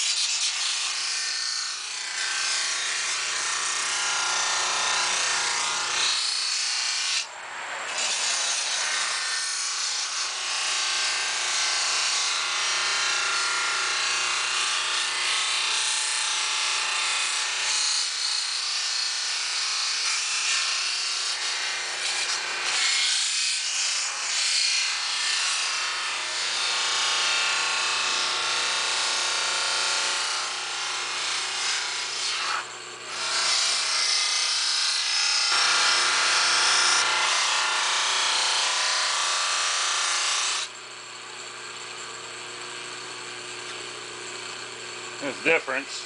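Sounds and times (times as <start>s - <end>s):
grinder motor hum: 0.0s - 16.0s, 35.0s - 46.0s.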